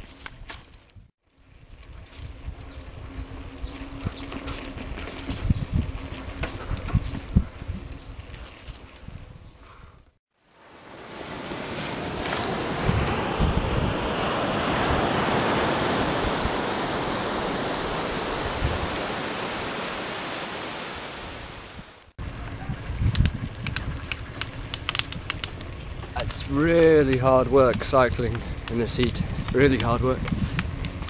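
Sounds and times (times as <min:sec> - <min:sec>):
wind buffeting microphone: 0:01.0 - 0:10.0, 0:11.3 - 0:19.6, 0:21.4 - 0:31.0
surf rushing: 0:10.5 - 0:22.1
sharp clicks and rattles: 0:23.0 - 0:31.0.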